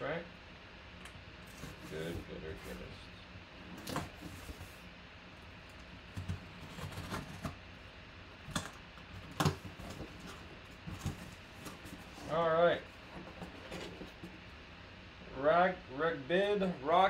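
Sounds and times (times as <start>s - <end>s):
cardboard box being opened: 6.0s - 7.6s, 8.6s - 12.4s, 13.0s - 14.4s.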